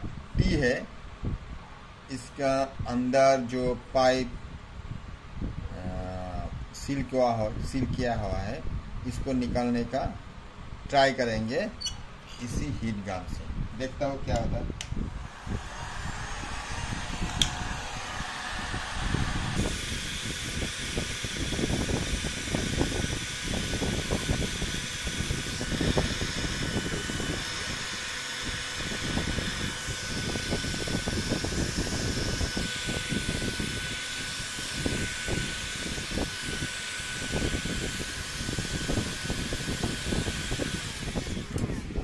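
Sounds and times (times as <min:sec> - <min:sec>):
faint steady whine: 0:10.9 - 0:42.0
heat gun blowing air: 0:14.8 - 0:42.0.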